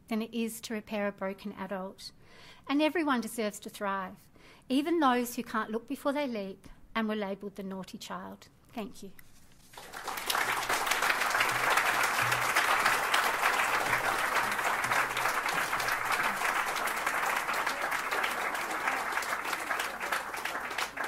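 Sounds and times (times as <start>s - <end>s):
audience applauding: 9.7s - 21.0s.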